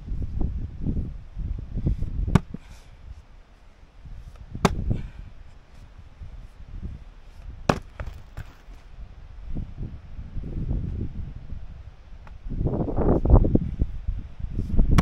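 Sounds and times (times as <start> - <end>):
axe splitting firewood: 2.2 - 2.8, 4.3 - 5.2, 7.6 - 8.8.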